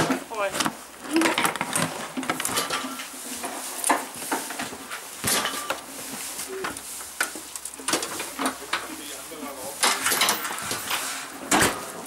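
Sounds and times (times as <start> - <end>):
metal buckles clattering: 7.6 - 12.0.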